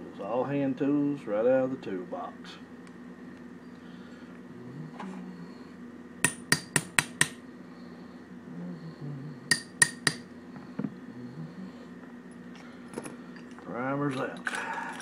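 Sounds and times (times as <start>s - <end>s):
hammer tapping metal rod: 6.2s - 7.4s, 9.5s - 10.2s.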